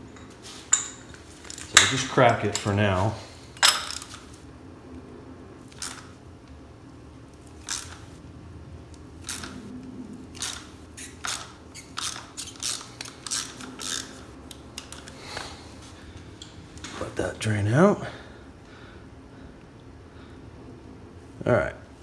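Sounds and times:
socket wrench ratcheting: 0:05.7 - 0:06.1, 0:07.6 - 0:08.0, 0:09.2 - 0:09.6, 0:10.3 - 0:15.1.

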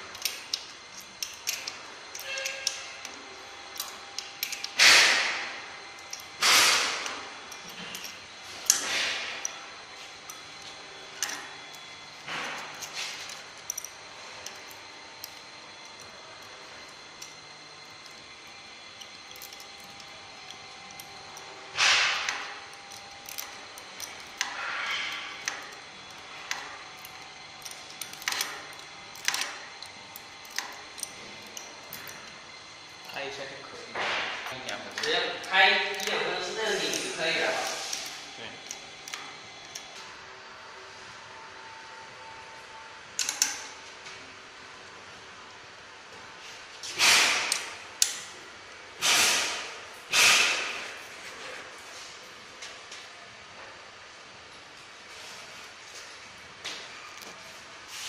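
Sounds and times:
metal rasps: 0:00.2 - 0:03.0.

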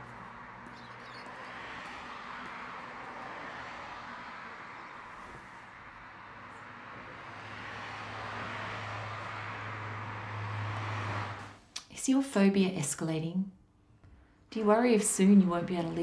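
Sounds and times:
road traffic passing: 0:00.0 - 0:11.9.

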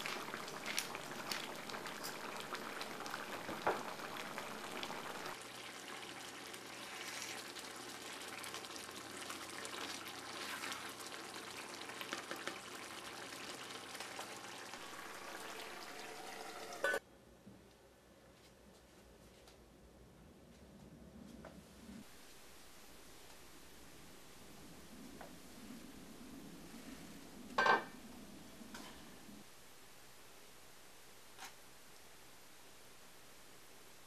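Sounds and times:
curry simmering and bubbling: 0:00.0 - 0:17.0
wooden spatula stirring: 0:09.1 - 0:11.3.

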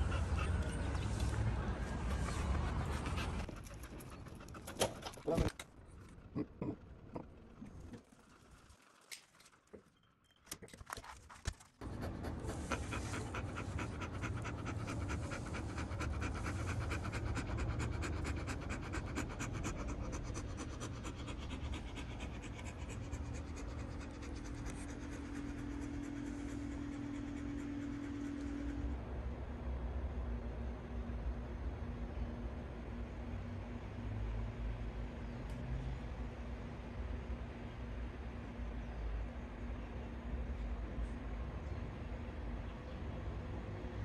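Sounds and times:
dog panting fast: 0:00.0 - 0:01.2, 0:01.9 - 0:05.3, 0:11.8 - 0:28.9.

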